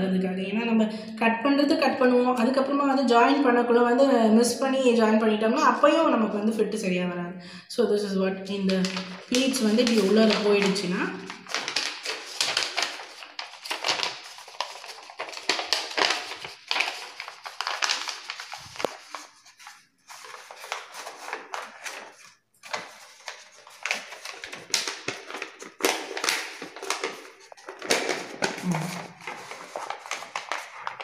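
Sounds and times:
paper rustling and crinkling: 8.6s - 31.0s.

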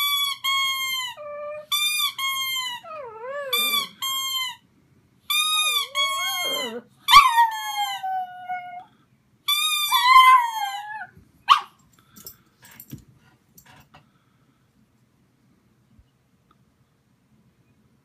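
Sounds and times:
squeaky toy squealing: 0.0s - 4.6s, 5.3s - 8.3s, 9.5s - 11.1s
dog howling: 5.6s - 8.9s.

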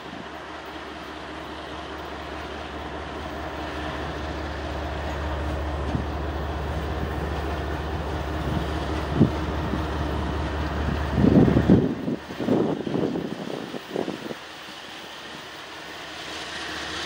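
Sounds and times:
diesel locomotive engines running: 0.0s - 17.0s.

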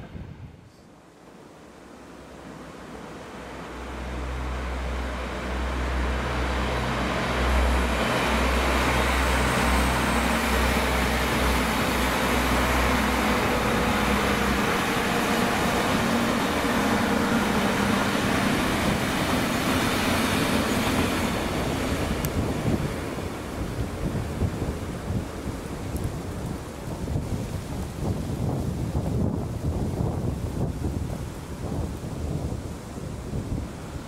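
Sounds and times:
train rumbling: 0.0s - 34.0s
wheel-on-rail noise: 2.4s - 34.0s.

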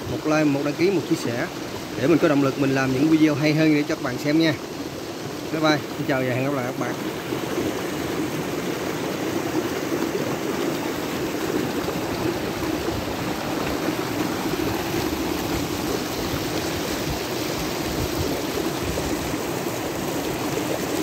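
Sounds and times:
stream rushing over rocks: 0.0s - 21.0s.

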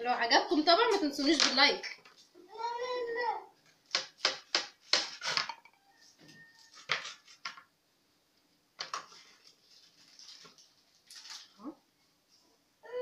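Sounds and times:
aluminium foil rustling: 6.6s - 7.6s, 8.8s - 11.6s.

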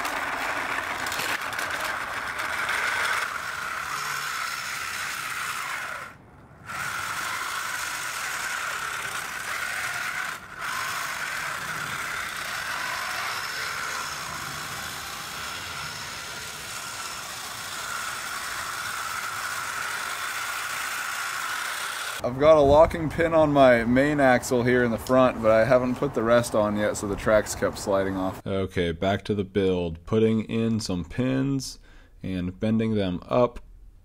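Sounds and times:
gears whirring and rattling: 0.0s - 23.3s.

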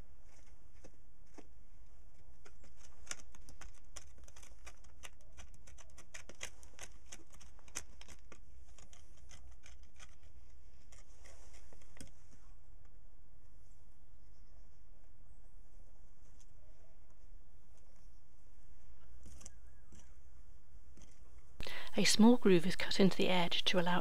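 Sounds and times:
antler pick digging stony soil: 0.0s - 12.2s.

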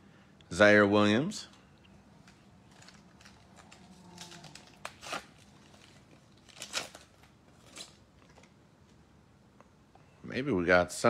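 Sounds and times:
wrapper crinkling being torn: 2.2s - 8.6s.

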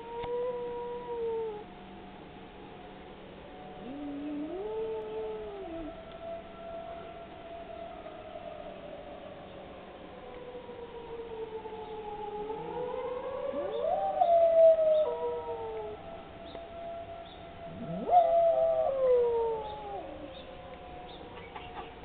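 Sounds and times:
warning siren wailing: 0.0s - 22.0s
dog howling: 3.7s - 9.4s, 10.2s - 22.0s.

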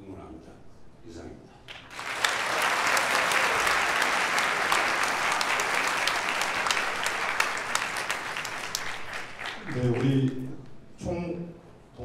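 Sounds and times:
audience applauding: 1.7s - 10.5s.

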